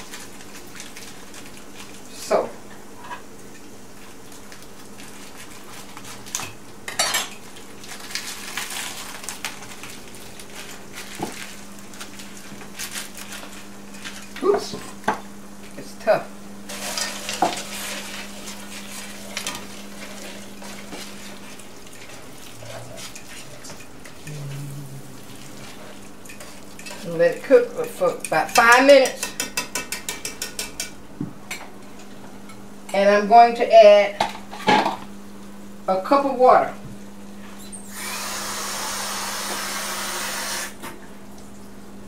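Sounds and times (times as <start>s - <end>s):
plastic bag rustling: 7.7s - 14.4s.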